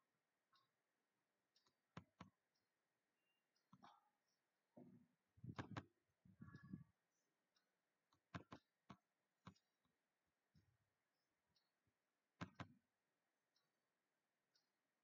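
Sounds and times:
computer mouse clicks: 0:05.4 - 0:06.8, 0:08.1 - 0:09.7, 0:12.4 - 0:12.8.

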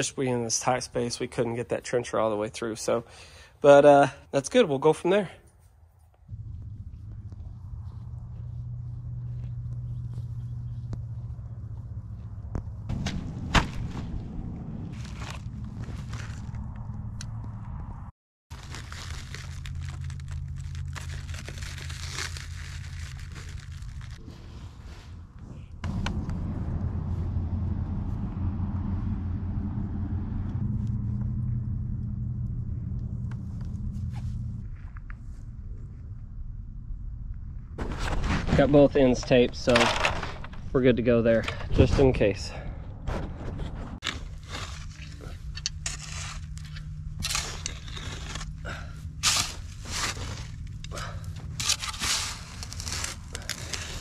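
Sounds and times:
engine idling: 0:25.8 - 0:35.0
shovel scraping dry dirt: 0:43.1 - 0:54.0.

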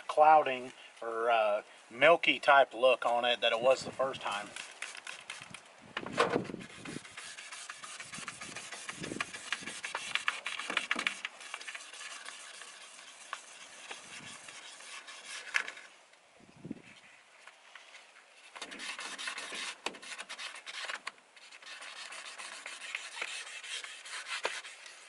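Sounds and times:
sandpaper rasping on plastic: 0:04.0 - 0:15.9, 0:18.5 - 0:25.0.

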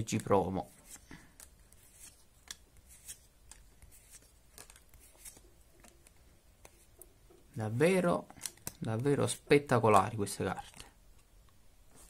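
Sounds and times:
cards swishing against each other: 0:00.2 - 0:07.0.

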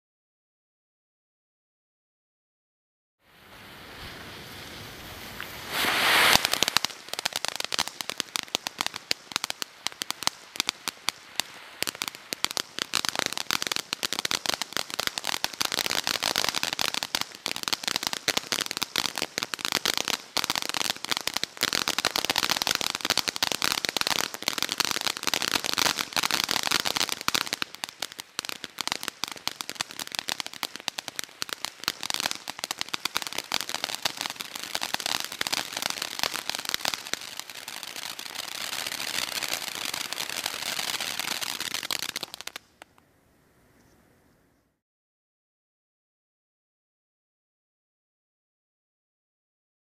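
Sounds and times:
firework fountain crackling: 0:03.2 - 0:43.0
fuse hiss: 0:03.3 - 0:12.4.

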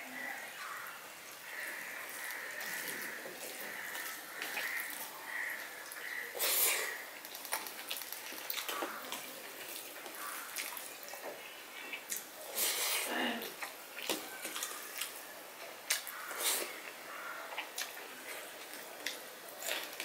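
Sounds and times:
chewing with lip-smacking: 0:15.9 - 0:20.0.

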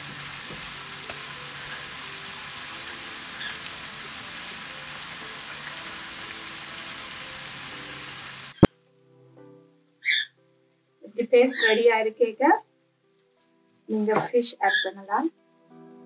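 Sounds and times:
paste sizzling in hot oil: 0:00.0 - 0:08.7.

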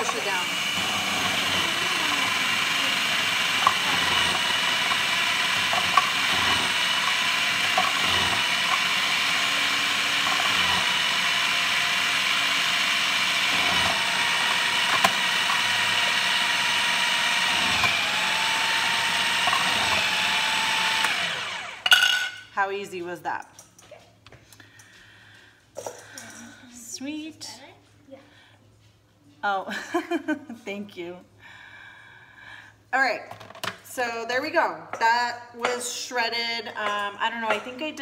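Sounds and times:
food processor motor whine: 0:00.0 - 0:21.9.

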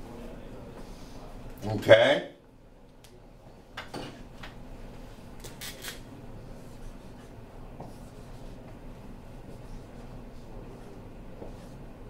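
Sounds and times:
steady low hum: 0:00.0 - 0:12.0
marker scratching on whiteboard: 0:06.6 - 0:11.8.

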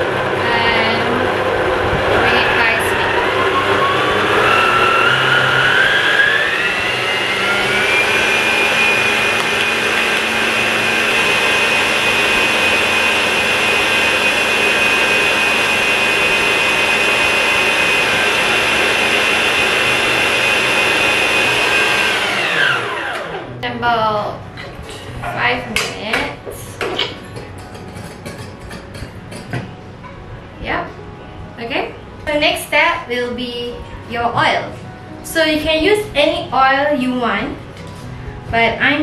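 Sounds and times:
stand mixer motor whine: 0:00.0 - 0:23.6.

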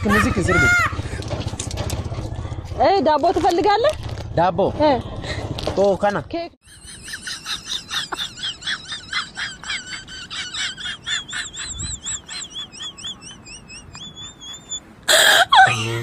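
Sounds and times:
high-pitched chirps: 0:11.6 - 0:14.8.

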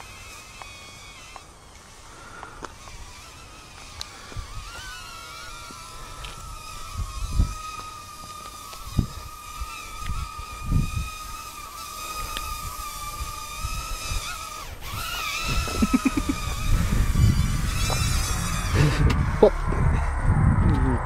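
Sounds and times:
quadcopter motors whining: 0:00.0 - 0:21.0
wind buffeting microphone: 0:04.3 - 0:21.0.

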